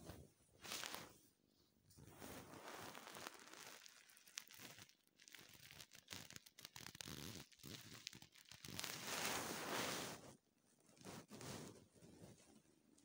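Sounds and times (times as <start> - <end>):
rustling and crinkling: 0.0 - 13.0.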